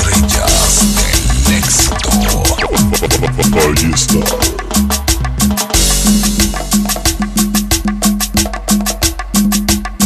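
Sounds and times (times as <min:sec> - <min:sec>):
percussion beat: 0:00.0 - 0:10.0
bass line: 0:00.7 - 0:06.6.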